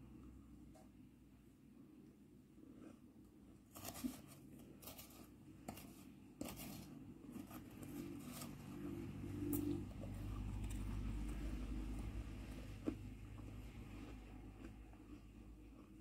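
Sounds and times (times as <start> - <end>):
metal spoon scraping shaved ice: 3.7 - 8.8.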